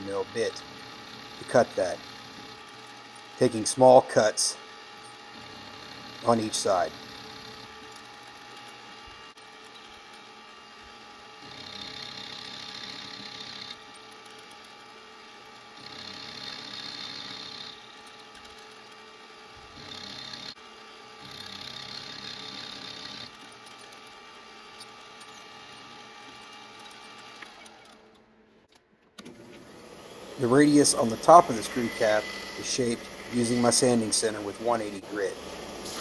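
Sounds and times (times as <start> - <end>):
end mill cutting brass: 0.0 - 28.0, 29.6 - 36.0
milling spindle hum: 0.0 - 28.3, 29.6 - 36.0.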